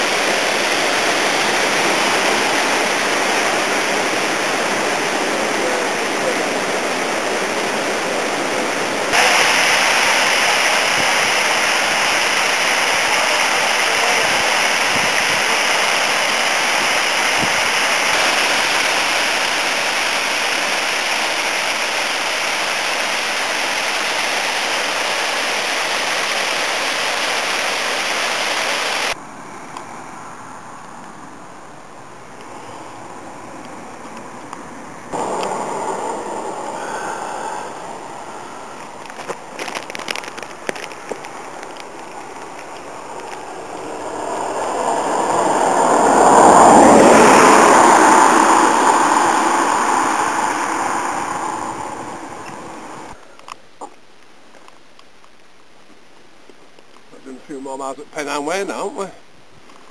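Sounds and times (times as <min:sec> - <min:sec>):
water pouring over weir: 0:09.2 - 0:27.9.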